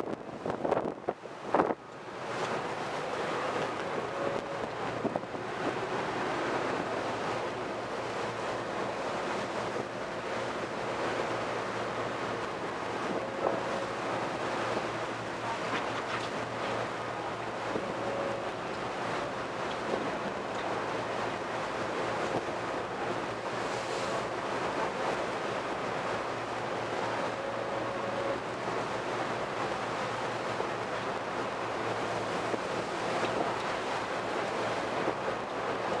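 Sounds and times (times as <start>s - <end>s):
strong wind buffeting microphone: 0.0s - 8.0s
rushing churning sea water: 0.0s - 36.0s.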